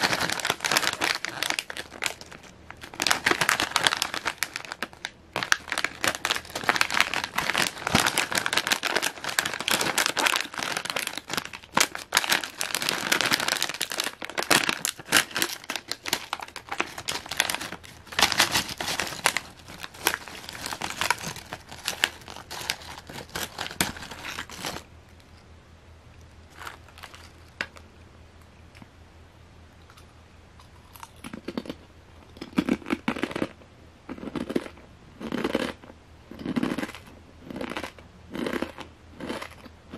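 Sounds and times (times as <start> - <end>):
chip bag crinkling and tearing: 0.0 - 24.9, 26.5 - 27.8.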